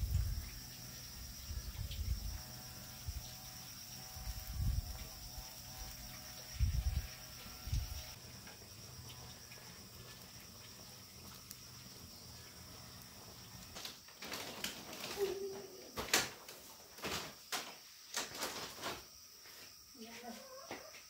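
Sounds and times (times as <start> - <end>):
people shifting on woven mat: 13.6 - 21.0.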